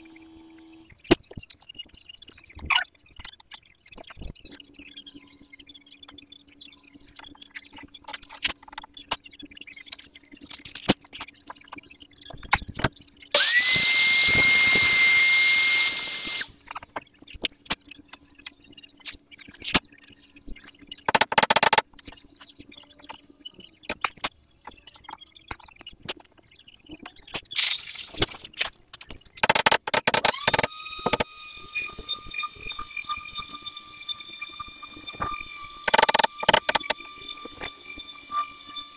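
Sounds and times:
power tool motor whining: 0:13.4 - 0:16.5, 0:29.4 - 0:38.9
knocks and clicks of handling: 0:21.1 - 0:21.8, 0:29.4 - 0:31.2, 0:35.9 - 0:37.0.

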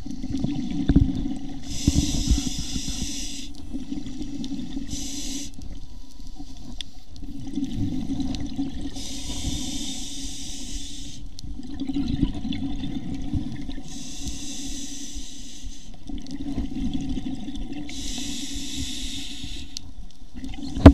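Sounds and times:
exhaled air bubbling underwater: 0:00.0 - 0:20.9
regulator inhale hiss: 0:01.6 - 0:03.6, 0:04.3 - 0:07.0, 0:08.9 - 0:11.4, 0:13.8 - 0:16.0, 0:17.9 - 0:19.9.

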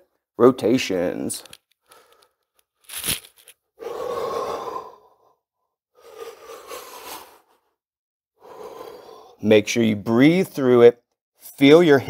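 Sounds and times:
man breathing deeply: 0:03.8 - 0:07.8, 0:08.4 - 0:09.4.

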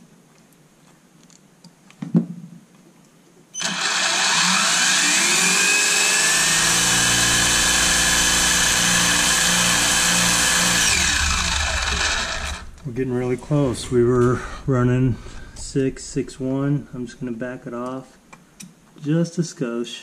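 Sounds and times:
electric motor whine: 0:03.6 - 0:12.8.

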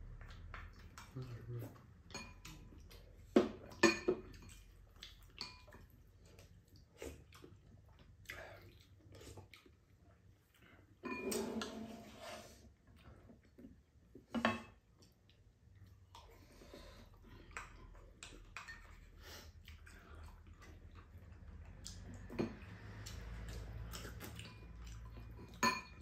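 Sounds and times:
utensils clinking on bowls: 0:11.0 - 0:12.0, 0:24.4 - 0:26.0
slurping soup: 0:11.1 - 0:12.8.

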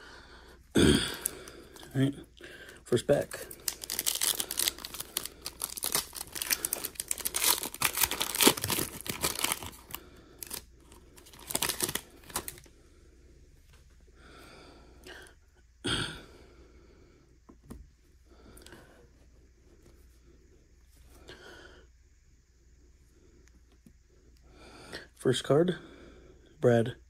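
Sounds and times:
foil wrapper crinkling and tearing: 0:03.2 - 0:12.7.

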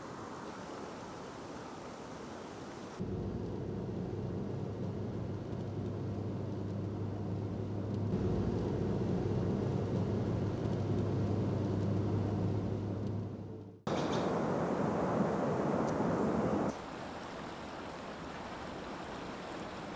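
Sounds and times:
car engine and road hum: 0:03.0 - 0:16.7.

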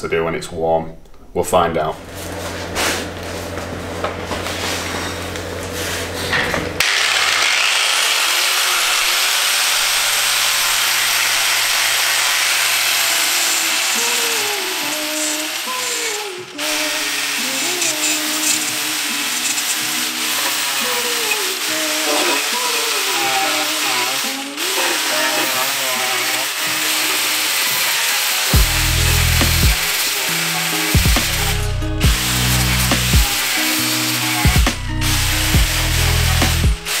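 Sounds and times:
angle grinder with wire brush: 0:04.3 - 0:37.0.

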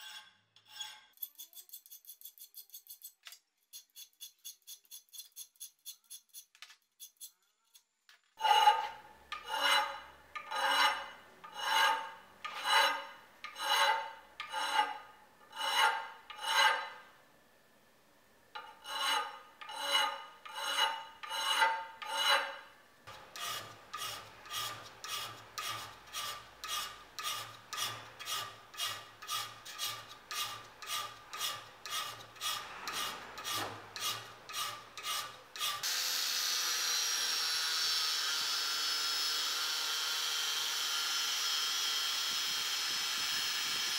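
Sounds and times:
file stroking steel blade: 0:00.0 - 0:17.1, 0:18.6 - 0:43.9
angle grinder grinding steel: 0:08.4 - 0:17.0, 0:18.6 - 0:43.9.

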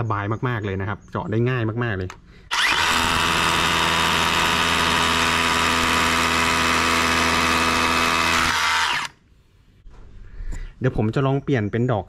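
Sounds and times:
rotary hammer drilling into concrete: 0:02.5 - 0:09.2.

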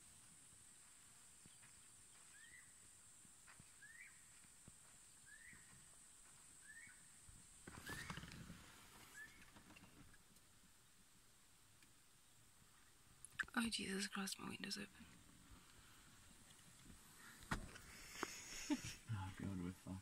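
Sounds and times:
bird whistling call: 0:09.1 - 0:09.4
thin high-pitched hiss: 0:17.2 - 0:19.1.

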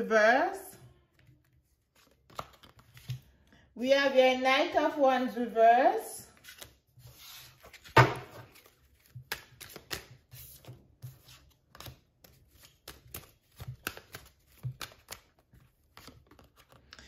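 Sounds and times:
cards being shuffled: 0:01.1 - 0:03.3, 0:06.4 - 0:17.0.

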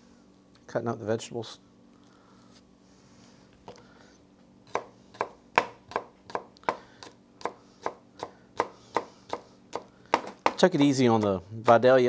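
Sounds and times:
knife chopping on cutting board: 0:04.7 - 0:10.7.

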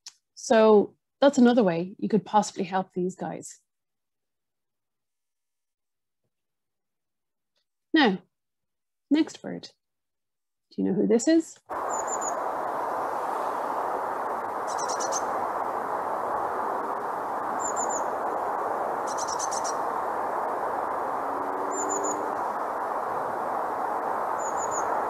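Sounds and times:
background hiss: 0:11.7 - 0:25.0
bird singing high notes and trills: 0:11.8 - 0:12.4, 0:14.6 - 0:15.3, 0:17.6 - 0:18.2, 0:19.0 - 0:19.8, 0:21.6 - 0:22.6, 0:24.4 - 0:25.0.

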